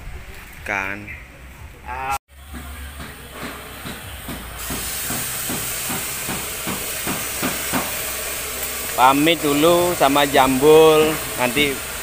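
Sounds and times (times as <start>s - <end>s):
steady hiss: 3.9s - 12.0s.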